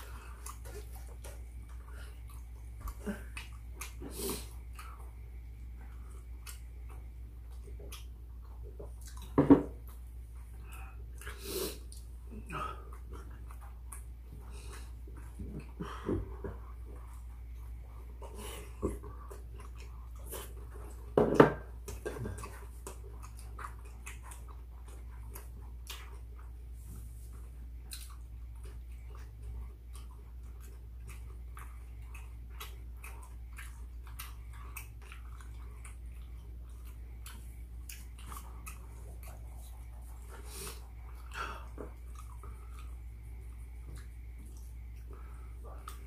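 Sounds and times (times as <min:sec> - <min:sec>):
close chewing: 0:00.0 - 0:46.0
steady low hum: 0:00.0 - 0:46.0.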